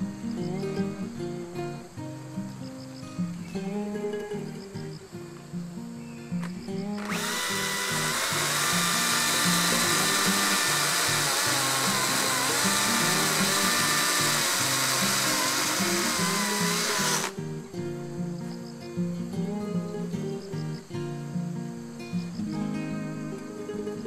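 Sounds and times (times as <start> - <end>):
background guitar music: 0.0 - 24.0
electric chainsaw cutting wood: 6.4 - 17.4.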